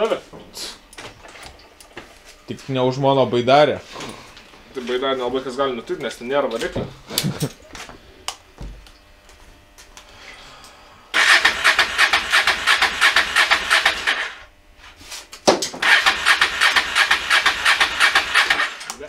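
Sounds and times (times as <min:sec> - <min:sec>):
motorcycle starter motor cranking: 0:11.2 - 0:14.5, 0:15.8 - 0:19.0.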